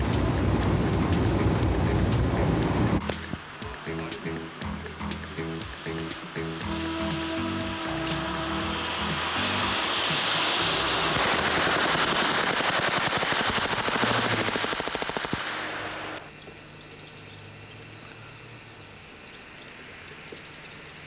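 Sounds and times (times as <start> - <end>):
rapid automatic gunfire: 11.2 - 16.0.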